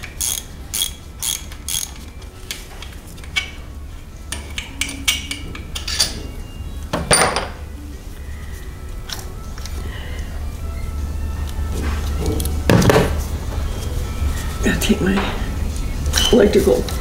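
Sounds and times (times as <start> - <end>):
ratchet and socket clinking: 0.0 - 2.2.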